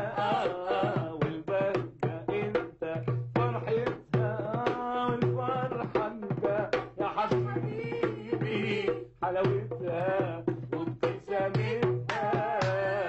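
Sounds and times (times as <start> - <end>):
hand drum rhythm: 0.0 - 13.0.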